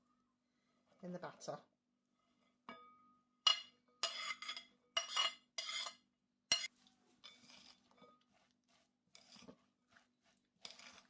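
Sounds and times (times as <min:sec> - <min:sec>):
metal spoon scraping on plate and bowl: 0:03.5 - 0:08.5, 0:09.1 - 0:09.7, 0:10.6 - 0:11.0.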